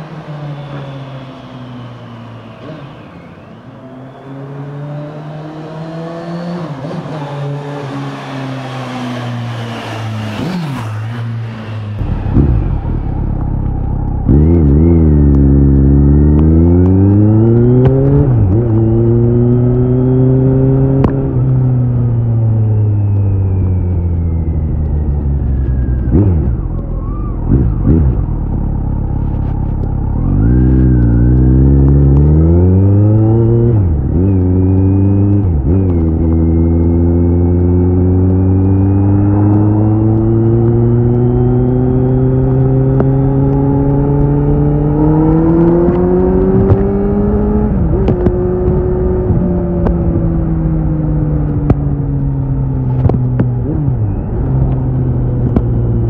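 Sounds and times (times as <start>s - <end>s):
motorcycle engine revving: 0.0s - 56.0s
wind noise on microphone: 42.4s - 56.0s.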